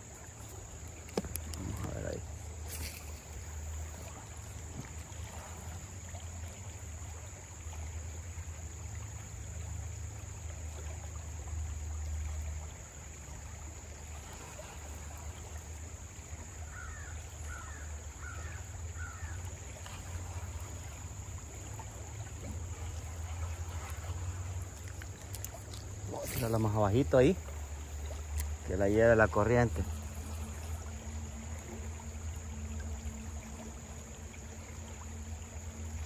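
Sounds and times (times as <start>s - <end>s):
creek water running over riffle: 0.0s - 36.0s
bird calling: 16.6s - 19.5s.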